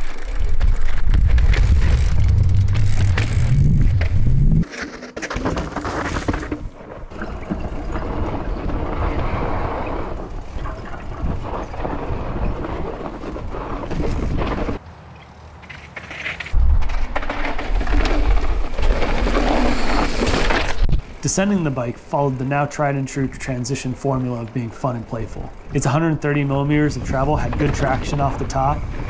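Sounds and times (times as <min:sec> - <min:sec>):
low rumble: 0:00.0 - 0:04.6
bike knocks and rattles: 0:00.0 - 0:21.1, 0:24.2 - 0:29.0
bike tyres crunching on dirt: 0:00.0 - 0:29.0.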